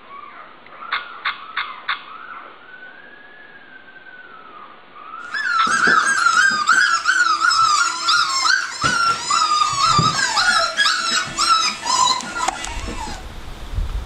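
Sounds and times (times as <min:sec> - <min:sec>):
puppies whining and squealing: 0:02.1 - 0:13.2.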